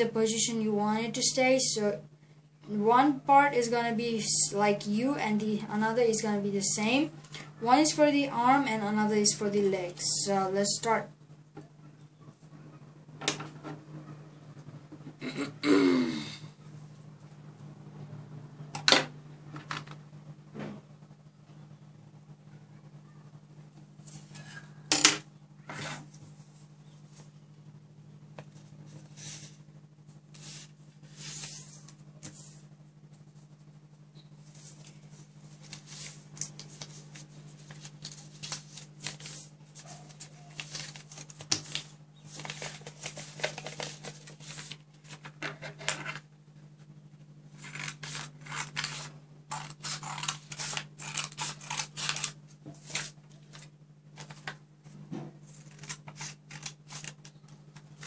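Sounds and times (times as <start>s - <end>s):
steady low hum: 0.0s - 58.0s
paper rustling and creasing: 30.2s - 33.6s, 34.4s - 46.2s, 47.5s - 58.0s
scissors snipping paper: 47.6s - 53.1s.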